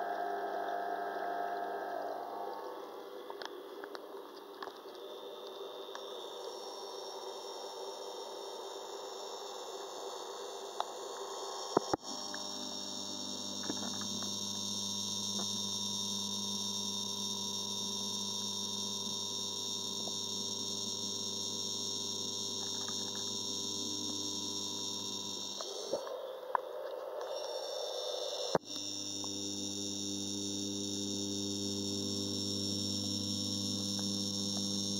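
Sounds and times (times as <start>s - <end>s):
electrical hum: 0.0s - 34.9s.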